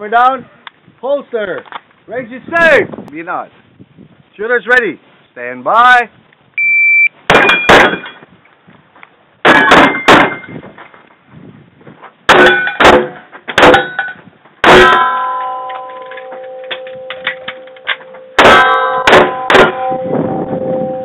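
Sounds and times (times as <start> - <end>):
shot timer beep: 6.6 - 7.7
steel targets ringing: 7.3 - 8.2, 9.5 - 10.6, 12.4 - 21.0.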